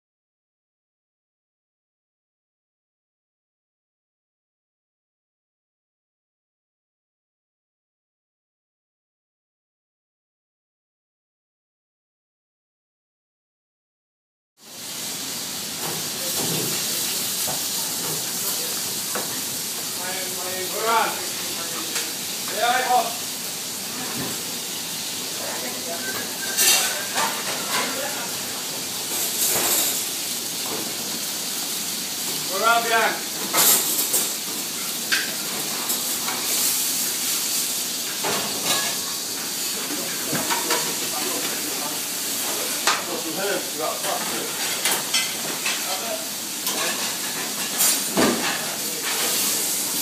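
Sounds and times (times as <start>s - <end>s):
steaks sizzling in frying pans: 14.6s - 50.0s.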